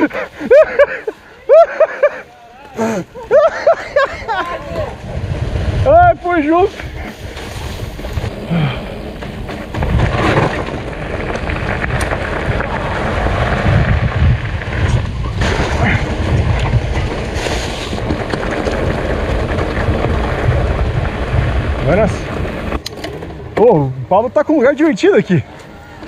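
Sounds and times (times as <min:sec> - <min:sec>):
tyres rumbling on rough ground: 0:00.0 - 0:26.0
wind buffeting microphone: 0:03.6 - 0:24.3.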